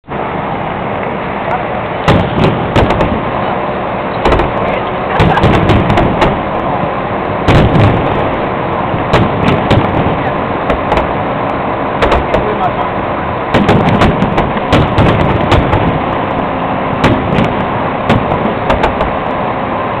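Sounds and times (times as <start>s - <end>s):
continuous din: 1.5s - 19.3s
fireworks bangs: 2.0s - 3.5s, 4.2s - 12.7s, 13.5s - 19.3s.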